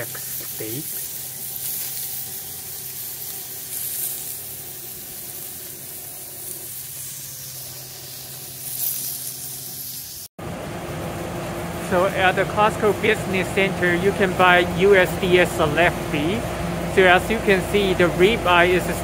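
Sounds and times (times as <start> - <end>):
steaks sizzling on a grill: 0.0 - 10.3.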